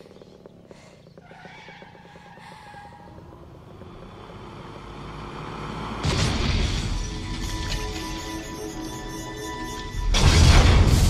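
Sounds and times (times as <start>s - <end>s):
heavy truck engine: 2.7s - 11.0s.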